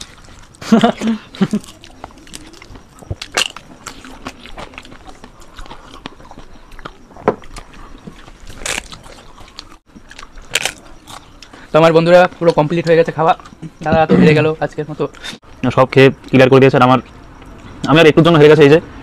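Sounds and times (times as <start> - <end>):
crisp food crunching: 0.0 - 13.6
quiet chewing: 0.0 - 14.1.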